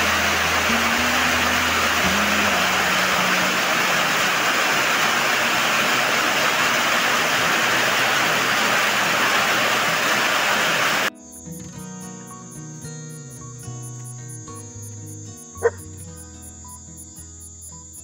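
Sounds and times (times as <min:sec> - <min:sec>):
heavy rain pouring: 0:00.0 - 0:11.1.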